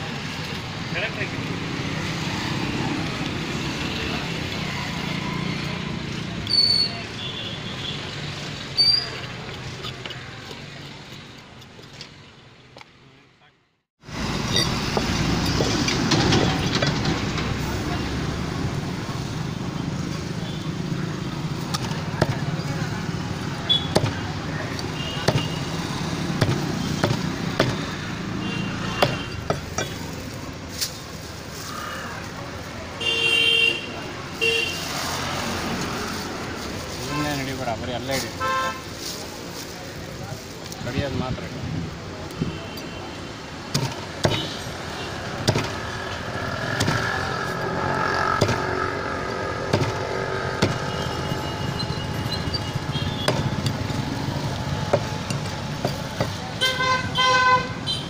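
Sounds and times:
road traffic hum: 0:00.0 - 0:58.0
cleaver chopping fish on wood: 0:21.7 - 0:22.4, 0:23.9 - 0:25.6, 0:26.2 - 0:28.0, 0:28.9 - 0:30.0, 0:43.7 - 0:44.6, 0:45.4 - 0:45.8, 0:46.7 - 0:47.2, 0:48.4 - 0:48.7, 0:49.7 - 0:50.0, 0:50.6 - 0:50.9, 0:53.0 - 0:53.9, 0:54.8 - 0:56.5.

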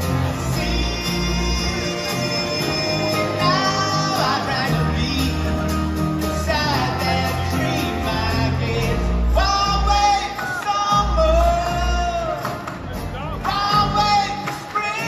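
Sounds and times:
live band music: 0:00.0 - 0:15.0
men singing long notes: 0:00.2 - 0:05.7.

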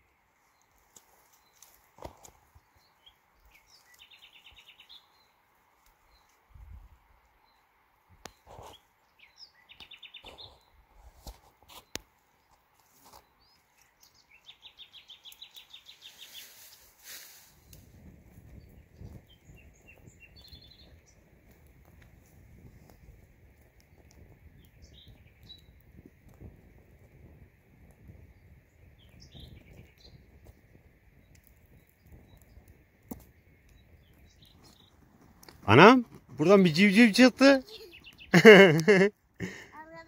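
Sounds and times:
dry leaves and twigs rustling: 0:00.1 - 0:06.5, 0:10.1 - 0:19.2.

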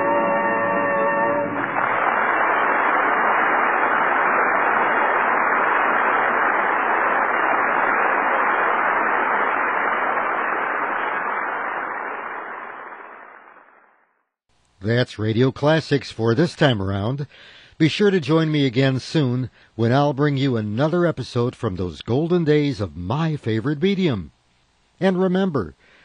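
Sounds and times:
muffled hiss-like rushing noise: 0:01.6 - 0:13.4.

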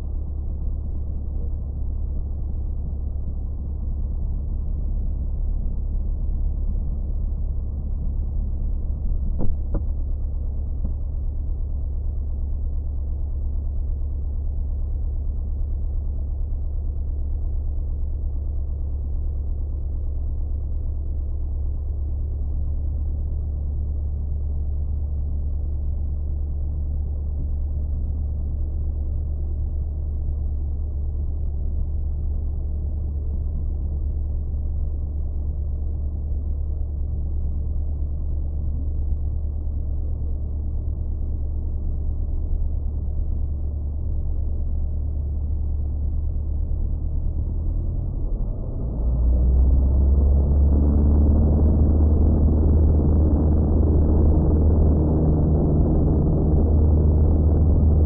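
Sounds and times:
propeller airplane engine droning: 0:36.4 - 0:58.0.

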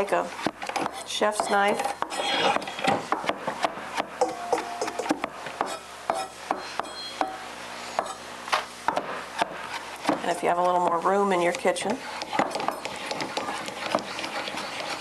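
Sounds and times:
knife chopping on wooden board: 0:00.4 - 0:07.4, 0:11.5 - 0:15.0.

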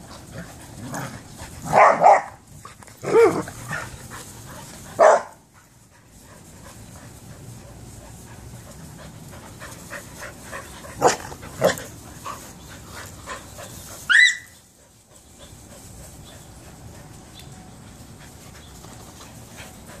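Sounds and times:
dogs panting: 0:00.0 - 0:01.8, 0:02.4 - 0:20.0
dog high yelp: 0:01.7 - 0:02.3, 0:14.1 - 0:14.6.

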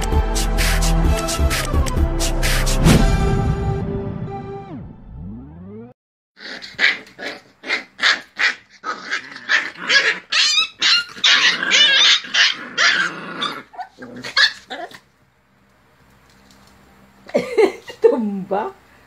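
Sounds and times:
dogs growling and barking: 0:06.4 - 0:15.1.

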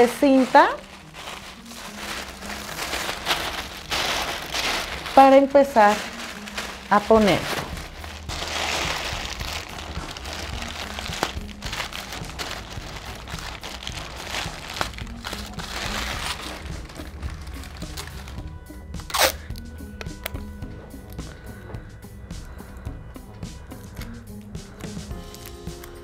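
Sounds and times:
tissue paper crinkling: 0:00.0 - 0:19.6, 0:25.0 - 0:26.0
background music: 0:00.0 - 0:26.0.

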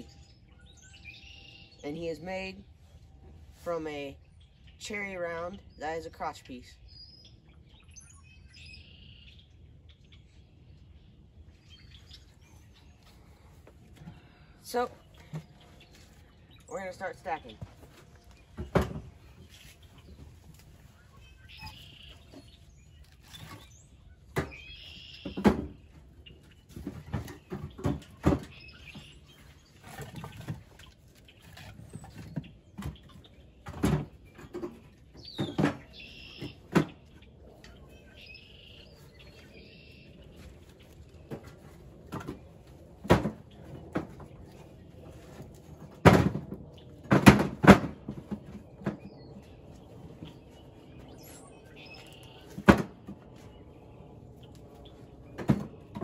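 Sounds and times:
small birds chirping: 0:03.6 - 0:46.0, 0:48.5 - 0:55.9.

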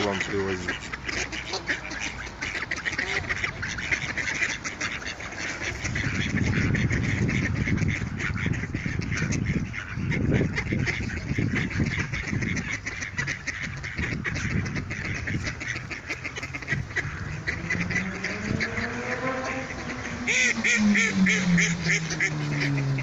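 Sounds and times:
ducks quacking: 0:00.0 - 0:23.0
low steady hum: 0:14.2 - 0:23.0
low rumble: 0:14.6 - 0:23.0.

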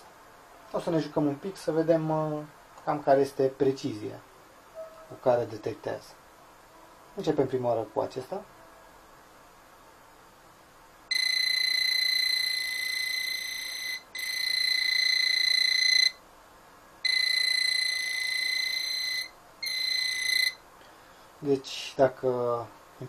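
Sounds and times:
high-pitched alarm tone: 0:11.1 - 0:16.2, 0:17.0 - 0:20.6.

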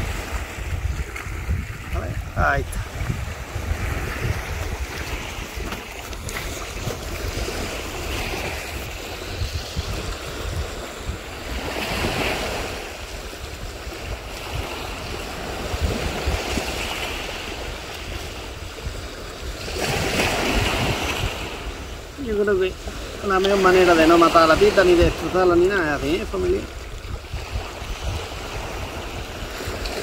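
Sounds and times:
sea waves washing onto shore: 0:00.0 - 0:30.0
wind buffeting microphone: 0:00.0 - 0:30.0.

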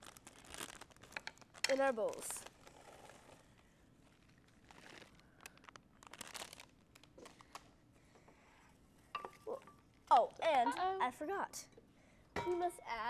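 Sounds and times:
plastic snack bag crinkling: 0:00.0 - 0:07.8.

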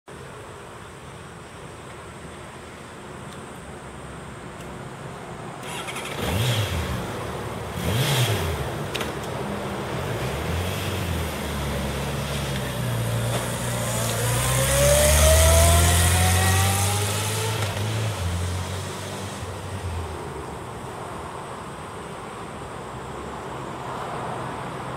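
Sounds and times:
motorcycle accelerating away: 0:05.6 - 0:20.0
motorcycle engine revving: 0:05.6 - 0:20.0.

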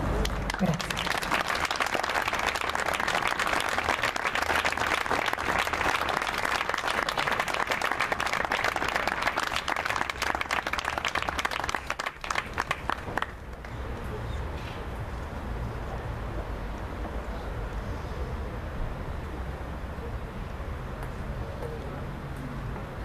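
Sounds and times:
audience applauding: 0:00.2 - 0:13.8.

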